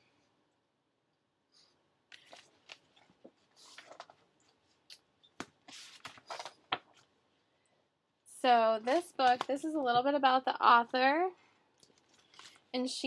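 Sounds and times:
book pages turning: 2.1 - 7.1, 8.8 - 9.7, 11.8 - 12.7.

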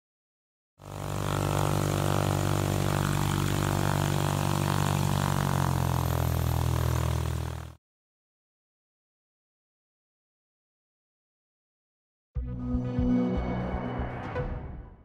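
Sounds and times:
low buzzing drone: 0.8 - 7.8.

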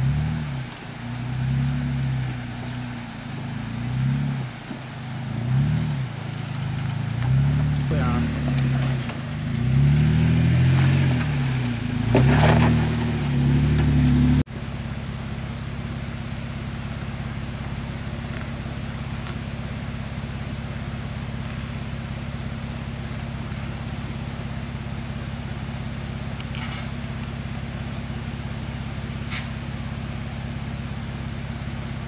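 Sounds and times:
engine revving: 0.0 - 14.5
engine idling: 0.0 - 32.0.

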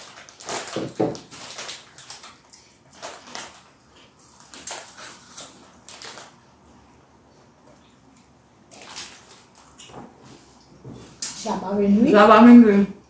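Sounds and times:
corn puffs being crunched: 0.0 - 6.4, 8.7 - 9.9
plastic snack bag crackling: 0.0 - 6.5, 8.7 - 9.8.

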